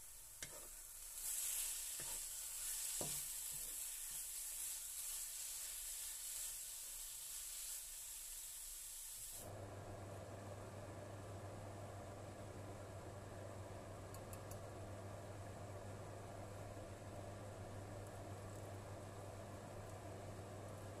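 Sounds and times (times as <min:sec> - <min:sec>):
food sizzling in oil: 0:00.0 - 0:09.5.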